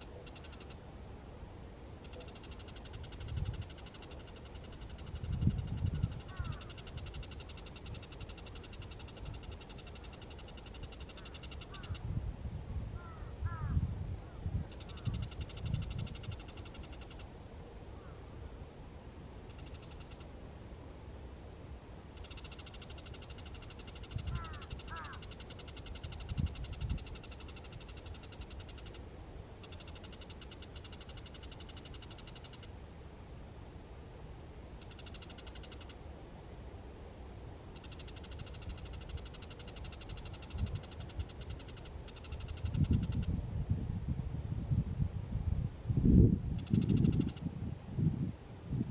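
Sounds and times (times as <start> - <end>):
bird rattling chatter: 2.1 - 12.0, 22.2 - 29.0.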